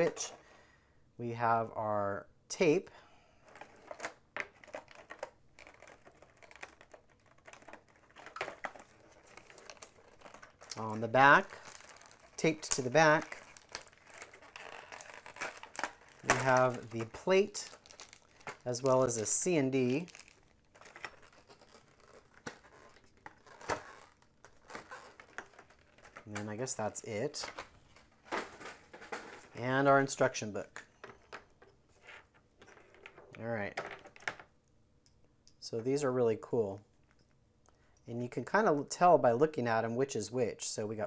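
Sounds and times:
plastic packaging crinkling: 0:03.5 - 0:31.5.

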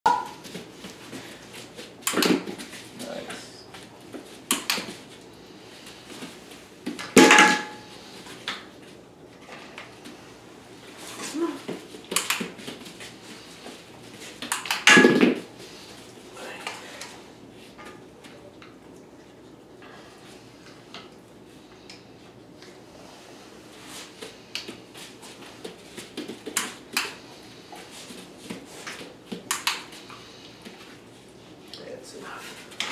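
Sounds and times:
plastic jump bar clattering: 0:14.5 - 0:15.4.

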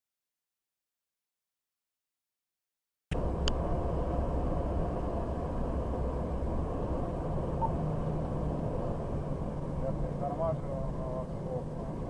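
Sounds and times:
vehicle engine and road rumble: 0:03.1 - 0:12.0.

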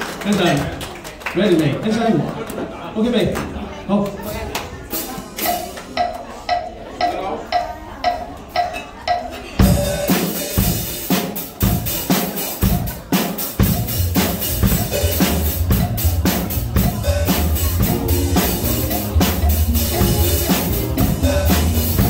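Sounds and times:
drum kit beat: 0:04.2 - 0:22.0
backing music with bass line: 0:12.6 - 0:22.0.

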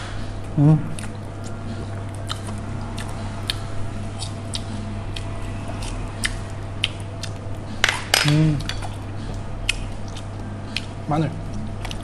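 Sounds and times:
steady low hum: 0:00.0 - 0:12.0
chewing noodles: 0:00.9 - 0:07.7, 0:08.6 - 0:12.0
chopsticks clicking against dishes: 0:05.8 - 0:09.0.

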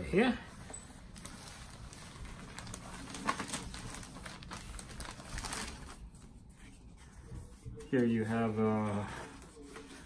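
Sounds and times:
plastic wrapping crinkling: 0:00.9 - 0:06.7.

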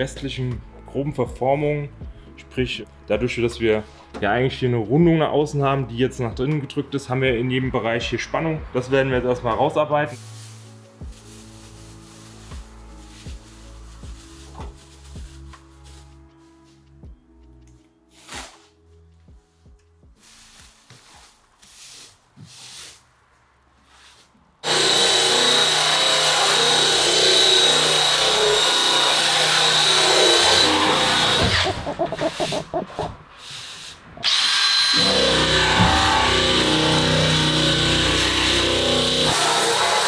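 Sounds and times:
power sander on sheet metal: 0:24.6 - 0:40.0.

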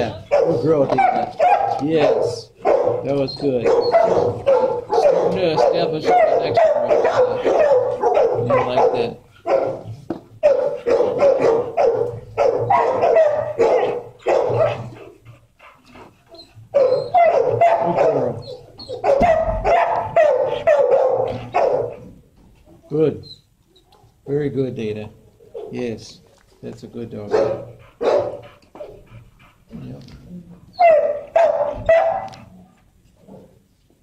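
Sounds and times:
dogs barking and yipping: 0:00.0 - 0:22.3, 0:27.2 - 0:29.2, 0:30.6 - 0:32.5.

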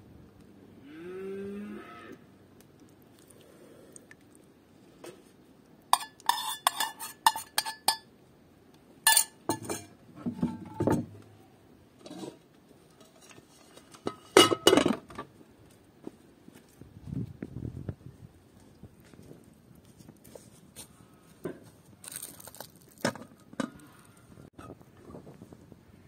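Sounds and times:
metal spoon clinking in bowl: 0:06.0 - 0:08.1, 0:09.1 - 0:09.9.

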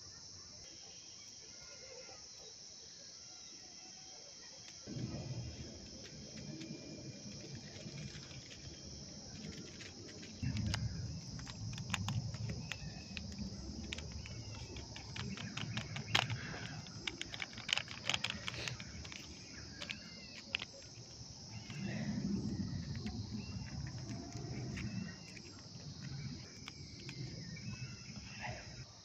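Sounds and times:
crickets chirping: 0:00.0 - 0:29.0
sharp clicks and crackles: 0:04.6 - 0:28.8
low rumble: 0:04.9 - 0:17.0
bird chirping: 0:06.4 - 0:28.8.

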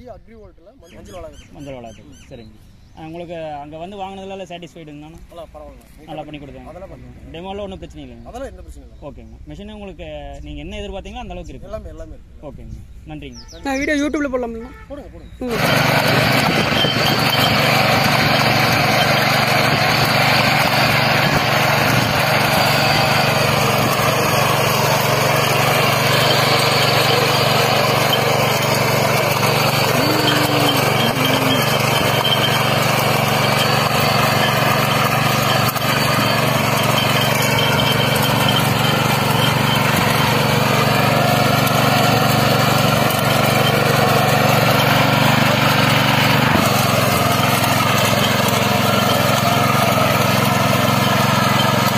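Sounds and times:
power weeder engine running: 0:15.4 - 0:51.9
tines tilling soil: 0:15.4 - 0:51.9.

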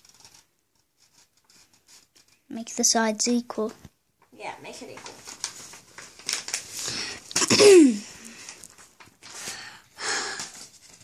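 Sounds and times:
paper rustling and folding: 0:04.7 - 0:11.0.

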